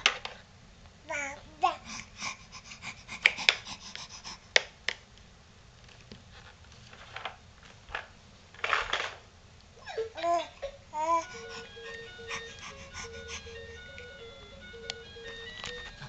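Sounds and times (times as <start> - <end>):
plastic scraping rattle: 6.9 - 9.2.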